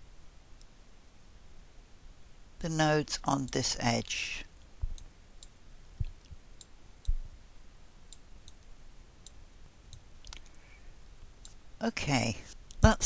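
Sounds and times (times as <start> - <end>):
dull low thumps: 6.0 - 6.5, 7.1 - 7.4.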